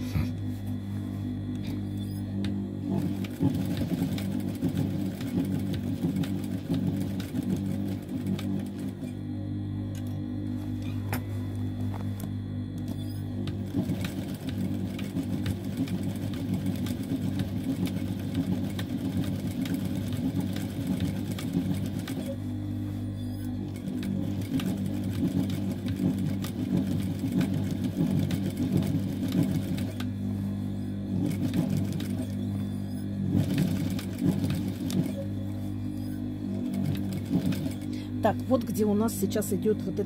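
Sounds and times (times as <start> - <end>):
sewing machine stitching: 1.6 - 9.2, 12.8 - 22.4, 23.4 - 30.1, 31.1 - 38.8.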